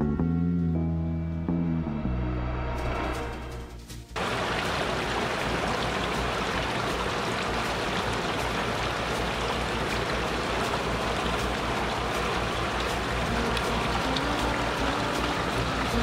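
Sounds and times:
water running over rocks: 0:04.2 - 0:16.0.

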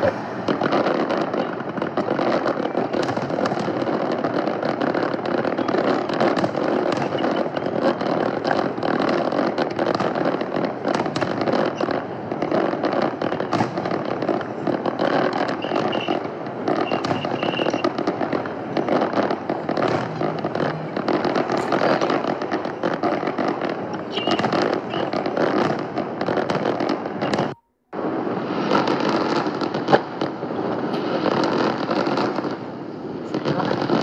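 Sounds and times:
fireworks crackling: 0:00.0 - 0:34.0
fireworks shells banging: 0:15.2 - 0:27.6.

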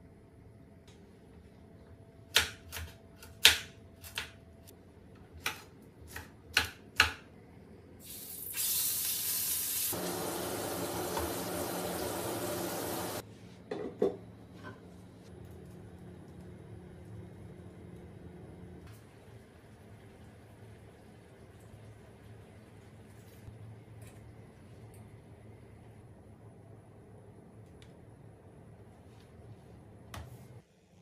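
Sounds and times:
knife chopping on cutting board: 0:02.3 - 0:04.4, 0:05.4 - 0:07.2.

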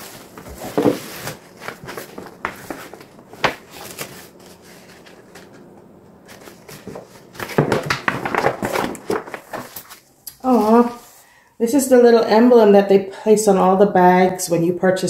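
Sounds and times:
paper bag crinkling: 0:00.0 - 0:11.2.

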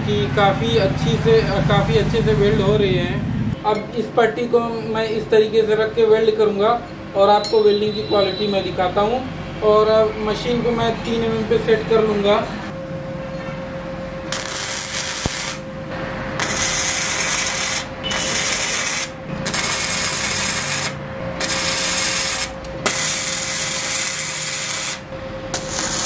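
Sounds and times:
welding arc crackling and sizzling: 0:14.3 - 0:15.7, 0:16.4 - 0:26.0.

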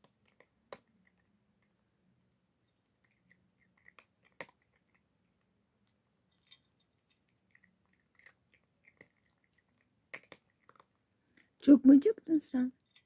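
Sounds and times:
cat crunching dry kibble: 0:00.0 - 0:01.4, 0:02.8 - 0:11.6.

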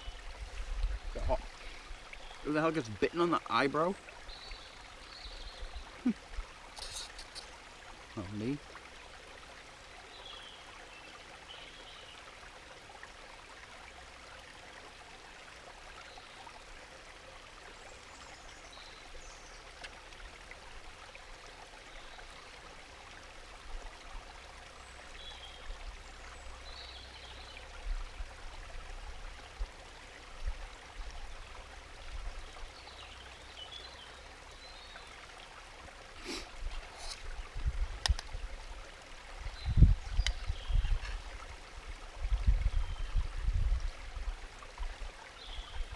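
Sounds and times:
stream running: 0:00.0 - 0:45.9.

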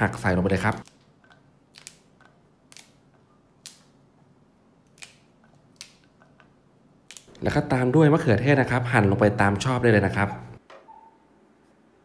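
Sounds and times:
beans snapping: 0:00.8 - 0:04.0, 0:04.8 - 0:07.3.

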